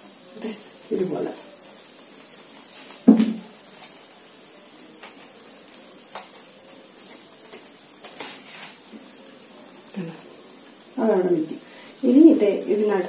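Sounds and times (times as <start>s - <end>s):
paper rustle: 2.5s - 9.1s
sharp thump: 3.1s - 3.4s.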